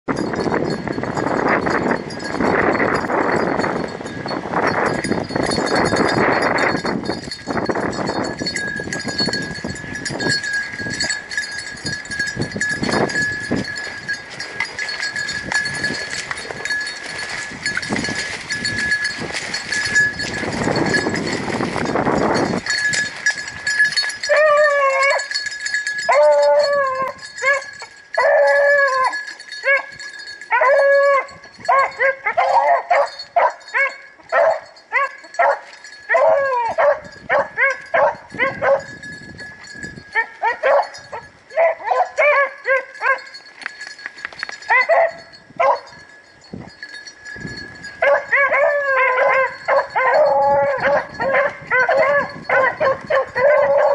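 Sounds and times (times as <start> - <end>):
hounds baying: 23.9 - 39.0, 40.1 - 43.4, 44.6 - 46.1, 47.9 - 53.9.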